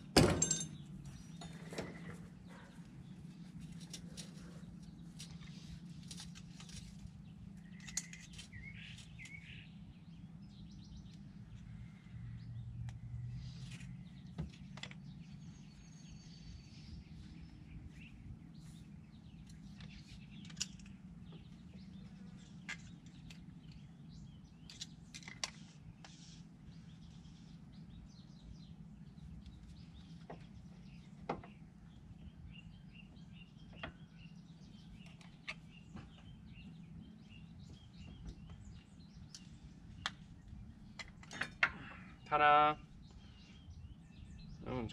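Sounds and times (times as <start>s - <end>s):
birds chirping: 0.0s - 44.9s
metal tools clinking: 0.2s - 2.2s.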